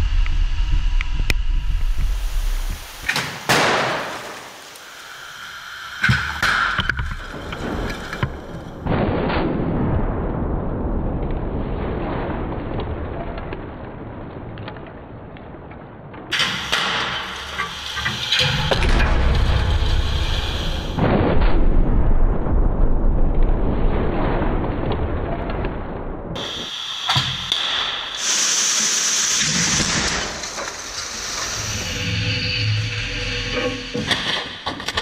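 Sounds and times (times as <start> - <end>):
sharp crash bangs: 3.1 - 4.7
loud car crash: 3.2 - 4.6.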